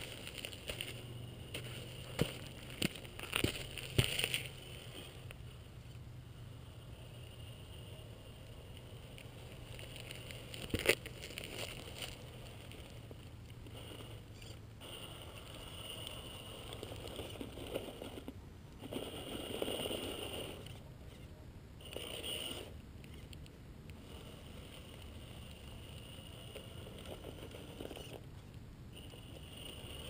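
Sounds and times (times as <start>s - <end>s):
tyres scraping over rock and leaves: 0.0s - 5.2s, 9.5s - 13.1s.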